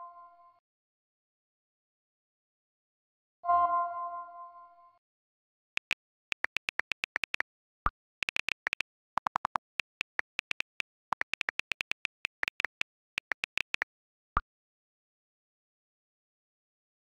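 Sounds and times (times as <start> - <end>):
phone keyboard taps: 5.8 - 7.4, 8.2 - 13.8.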